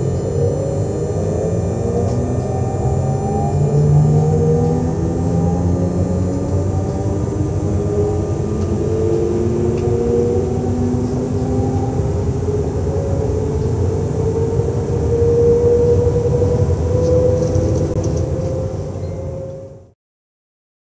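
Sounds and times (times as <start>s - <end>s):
electric train humming and whining: 0.0s - 20.0s.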